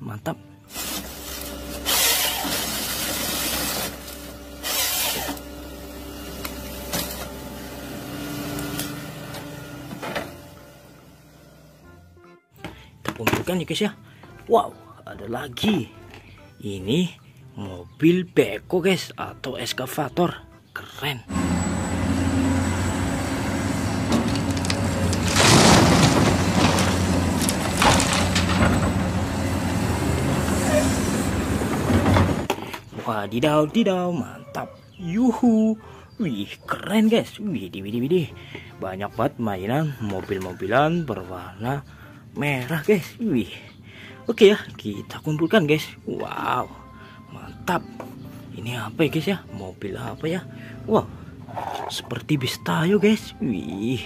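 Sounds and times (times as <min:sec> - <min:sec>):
harvester head harsh noise: 0:00.7 - 0:05.6, 0:21.3 - 0:32.6
engine humming: 0:00.7 - 0:12.8, 0:21.3 - 0:32.9
earth and rock crunching: 0:23.8 - 0:30.5.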